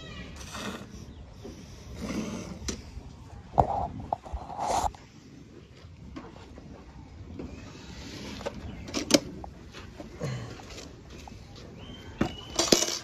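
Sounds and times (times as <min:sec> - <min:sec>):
metal pail clattering on brick floor: 0:12.2 - 0:13.0.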